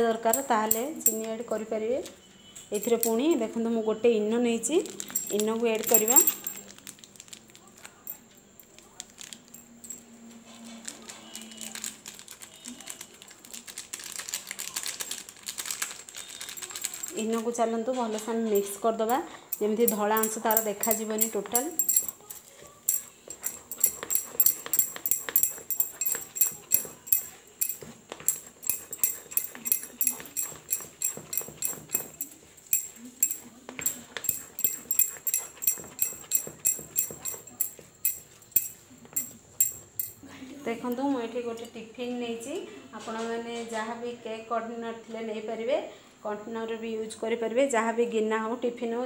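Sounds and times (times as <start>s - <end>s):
foil sachet crinkling and tearing: 6.6s - 8.0s, 8.7s - 9.5s, 10.5s - 17.5s
spatula scraping thick batter: 22.4s - 32.5s, 33.4s - 38.3s.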